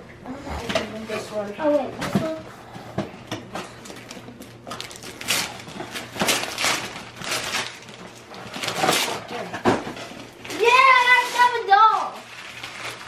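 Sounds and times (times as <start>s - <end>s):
gift wrap rustling and crinkling: 3.5s - 13.0s.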